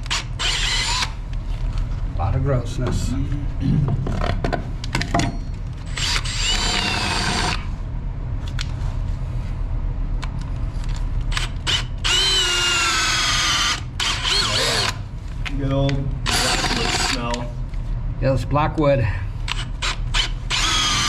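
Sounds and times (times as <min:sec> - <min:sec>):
cordless drill boring into wood: 0:00.0 - 0:01.2, 0:05.9 - 0:07.6, 0:11.4 - 0:15.0, 0:16.3 - 0:17.2, 0:19.6 - 0:21.0.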